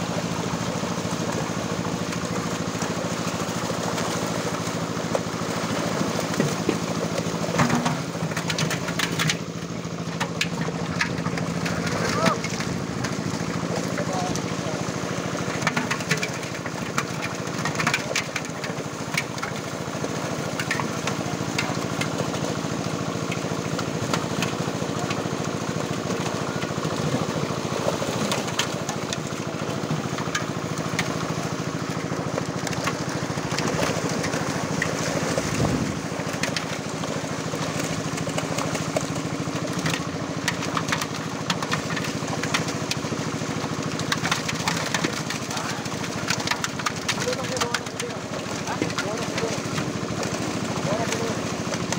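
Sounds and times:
fish splashing in shallow water: 0.0 - 51.9
small engine running: 0.0 - 51.9.

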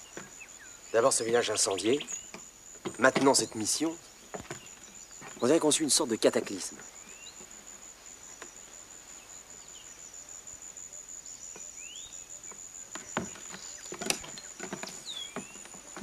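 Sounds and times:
high-pitched insect trill: 0.0 - 16.0.

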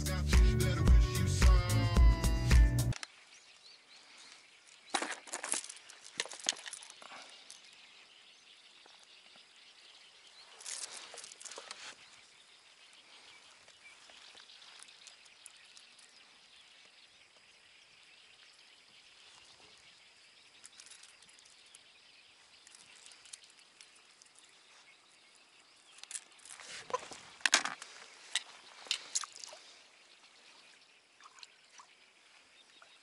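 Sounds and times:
hands rustling fishing gear: 4.0 - 8.1, 10.4 - 12.4, 13.0 - 16.5, 20.5 - 21.8, 22.4 - 24.9, 25.9 - 29.8.

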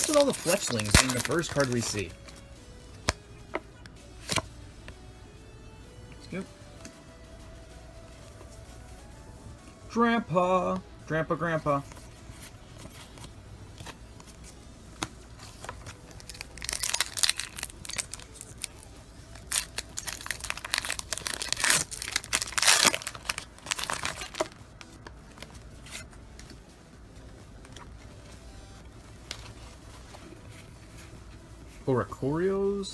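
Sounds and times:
foil wrapper tearing and crinkling: 0.0 - 2.1, 15.9 - 24.6.

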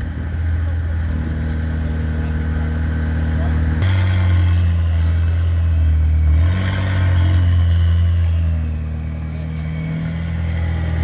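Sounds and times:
car engine at low revs: 0.0 - 11.0.

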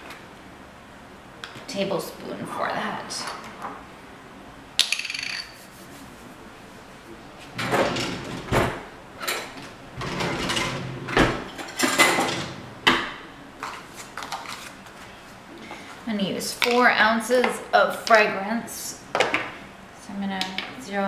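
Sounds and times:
utensils clattering: 7.6 - 13.0.

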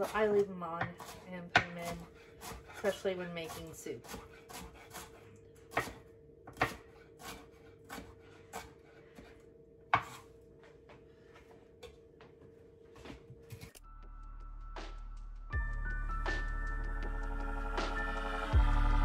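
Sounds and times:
knife chopping on wooden board: 0.0 - 10.3.

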